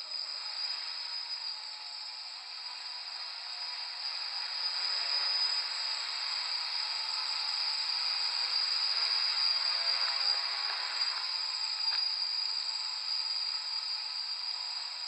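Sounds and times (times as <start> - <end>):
quadcopter whirring: 0.2 - 15.0.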